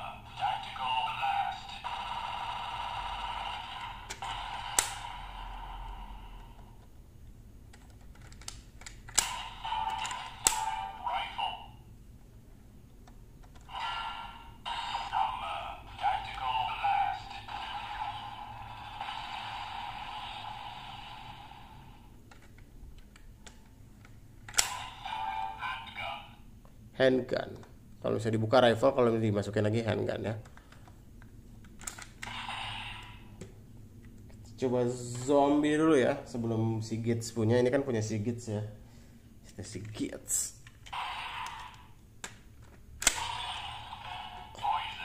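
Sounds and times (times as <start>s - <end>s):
toy gun electronic blast effect: 1.3s - 6.0s, 13.7s - 16.2s, 17.0s - 21.3s, 32.2s - 33.3s, 43.0s - 45.0s
plastic clicks of toy parts: 7.7s - 10.6s, 31.6s - 32.3s
toy blaster electronic tone: 32.3s - 33.2s, 41.0s - 41.9s, 43.2s - 45.0s.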